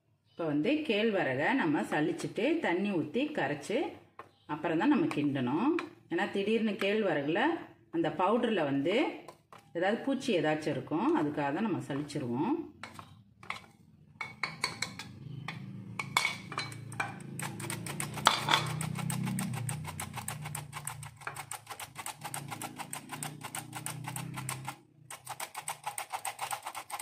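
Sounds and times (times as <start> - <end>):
spoon scraping and tapping: 5.0 - 6.0, 9.2 - 9.8, 12.8 - 27.0.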